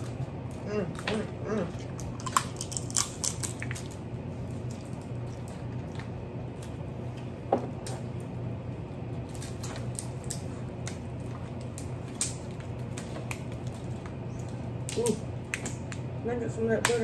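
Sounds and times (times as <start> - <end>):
steady low hum: 0.0 - 17.0
crab shells cracking: 1.8 - 5.7, 9.2 - 16.1.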